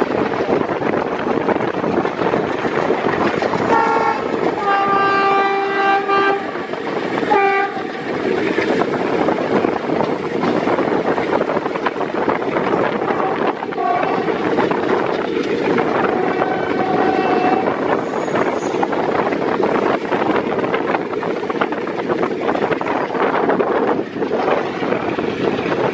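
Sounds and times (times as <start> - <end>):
moving train rattling: 0.0 - 25.9
train horn: 3.7 - 6.6, 7.3 - 8.1, 13.1 - 14.4, 16.0 - 18.4.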